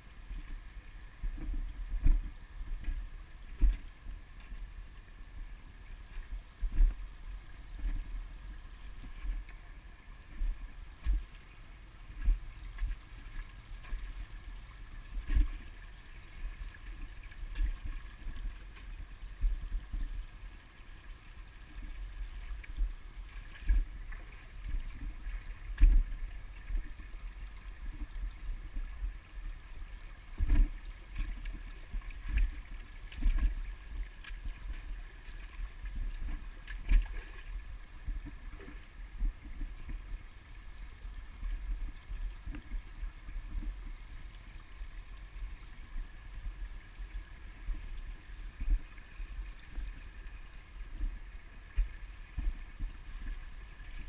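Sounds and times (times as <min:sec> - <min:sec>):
stream trickling over stones: 0:00.0 - 0:54.0.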